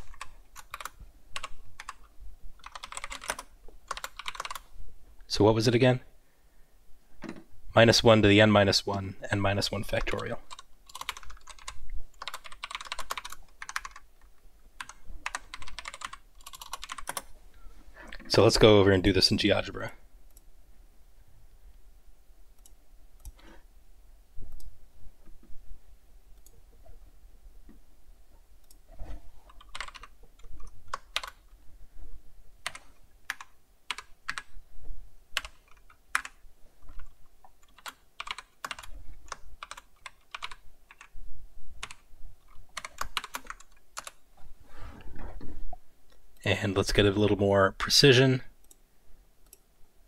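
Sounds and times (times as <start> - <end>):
typing on computer keyboard: 0.0 - 2.0, 2.6 - 4.7, 9.9 - 14.1, 14.8 - 17.3, 29.5 - 31.4, 32.6 - 34.5, 35.4 - 41.1, 41.8 - 42.0, 42.7 - 44.2.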